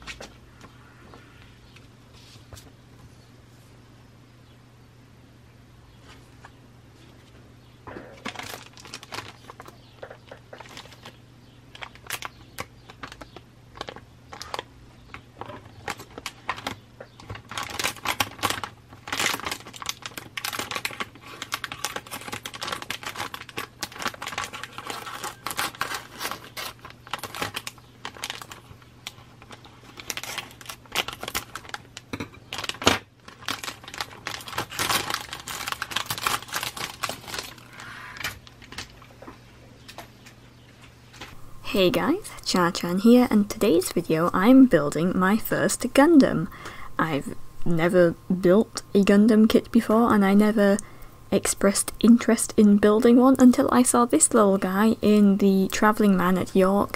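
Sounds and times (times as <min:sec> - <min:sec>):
plastic bags crinkling: 0:07.9 - 0:39.1.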